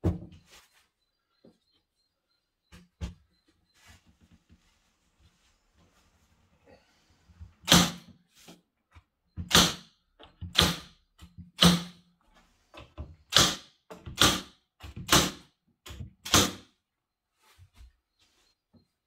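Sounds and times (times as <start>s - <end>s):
stapler firing into wood: 7.7s - 8.0s, 9.5s - 9.9s, 10.5s - 10.9s, 11.6s - 12.0s, 13.3s - 15.4s, 16.2s - 16.7s.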